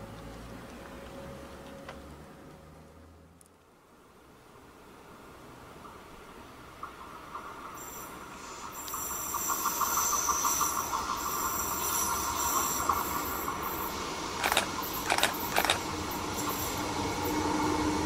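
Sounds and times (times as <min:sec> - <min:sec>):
train approaching: 0:04.6 - 0:18.0
sharp train clacks: 0:06.8 - 0:18.0.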